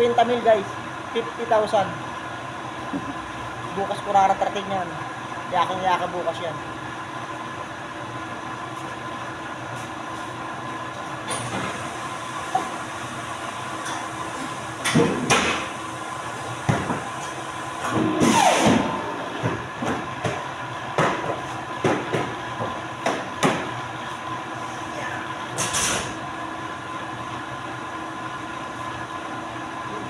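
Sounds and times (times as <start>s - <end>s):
machine hum: 5.0s - 25.5s
paper stacks thumping: 19.4s - 23.8s.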